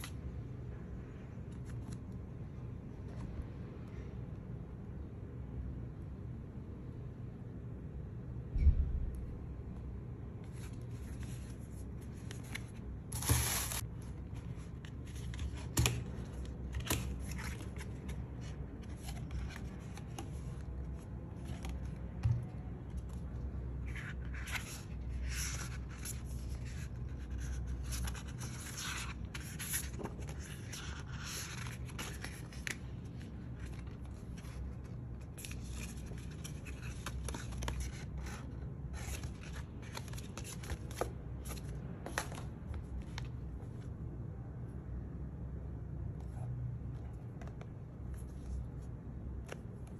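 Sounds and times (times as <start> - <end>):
paper rustling: 10.5 - 22.2, 22.9 - 43.4.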